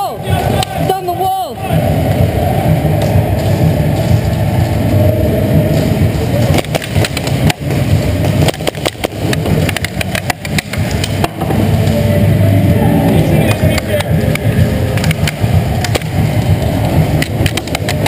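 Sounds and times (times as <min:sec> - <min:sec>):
low rumble: 0:00.0 - 0:18.0
sharp clicks and knocks: 0:06.5 - 0:12.0, 0:13.7 - 0:18.0.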